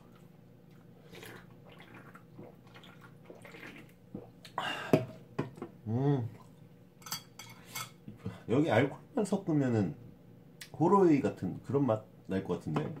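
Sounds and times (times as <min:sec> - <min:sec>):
person gulping a drink: 0:00.1 - 0:05.2.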